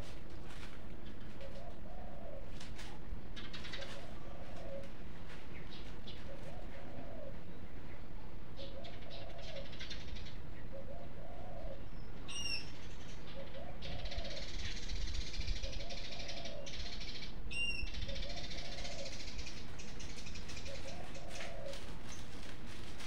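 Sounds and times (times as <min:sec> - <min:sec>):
market rustling and clatter: 0:00.0 - 0:01.8, 0:02.5 - 0:06.6, 0:19.7 - 0:23.0
bird cooing: 0:00.0 - 0:23.0.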